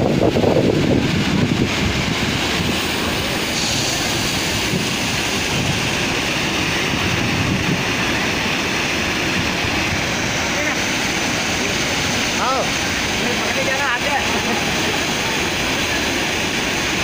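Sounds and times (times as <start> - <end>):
rushing falling water: 0.0 - 17.0.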